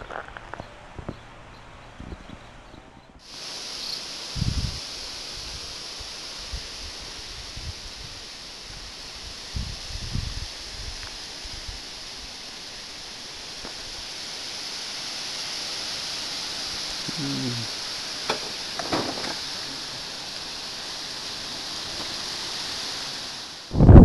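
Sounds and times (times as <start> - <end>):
high outdoor hiss: 0.0 - 24.0
low falling call: 16.8 - 22.3.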